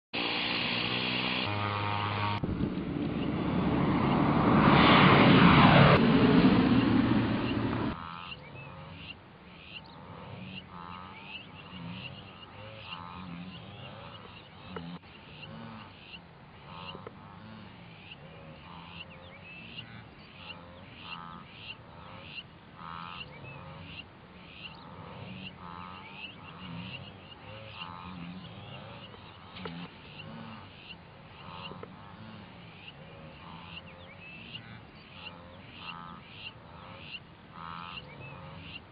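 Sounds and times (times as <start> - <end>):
propeller plane taking off: 0.2 - 8.0
wildebeest herd grunting: 6.7 - 38.9.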